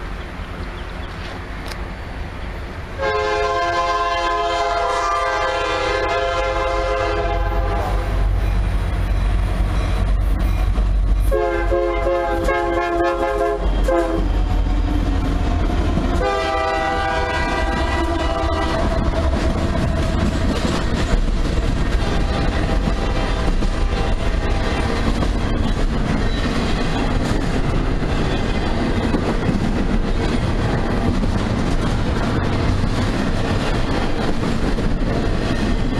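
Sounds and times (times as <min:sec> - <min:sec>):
locomotive and freight cars rumbling: 0:00.0 - 0:35.9
locomotive horn blasts: 0:03.0 - 0:08.2, 0:11.3 - 0:14.4, 0:16.1 - 0:19.4.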